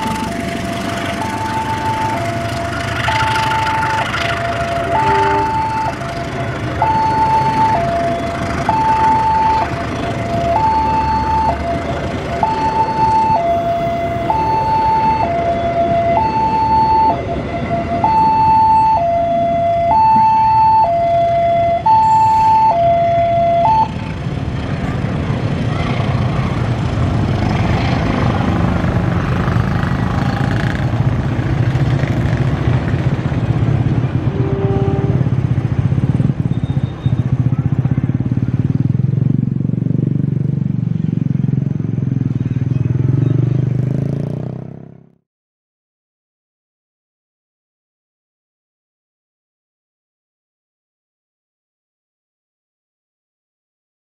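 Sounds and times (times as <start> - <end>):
train wheels rumbling on rails: 0.0 - 14.6
two-tone level crossing alarm: 0.0 - 24.0.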